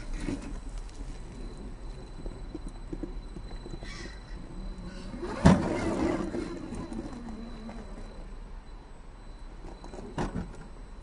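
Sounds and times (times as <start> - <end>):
small electric motor whining: 1.3 - 8.4.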